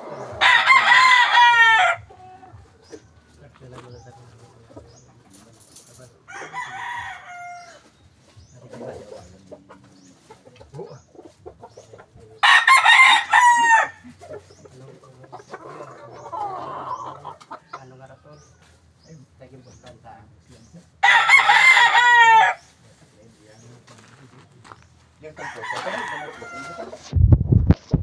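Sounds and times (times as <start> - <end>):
roosters crowing: 0.0 - 3.2, 3.9 - 18.0, 21.0 - 22.9, 24.7 - 27.1.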